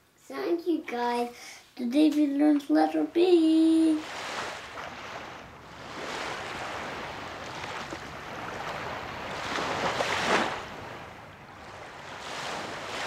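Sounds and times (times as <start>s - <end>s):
ocean waves surf: 3.6s - 13.0s.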